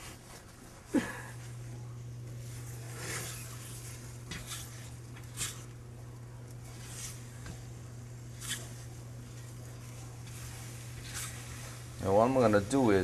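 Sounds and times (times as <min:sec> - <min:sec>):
steady low hum: 0:00.0 - 0:13.0
spatula scraping a pan: 0:02.8 - 0:05.7, 0:10.2 - 0:12.7.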